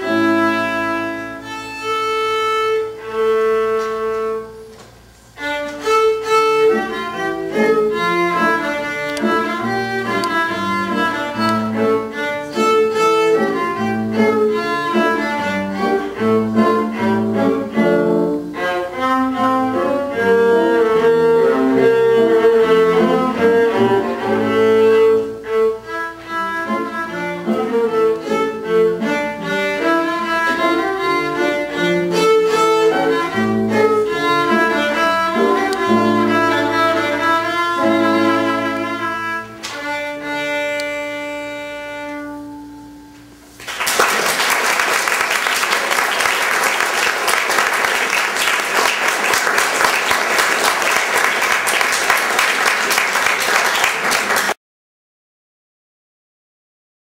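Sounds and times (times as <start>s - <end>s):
violin and piano classical piece: 0.0s - 43.4s
audience applause: 43.6s - 54.6s.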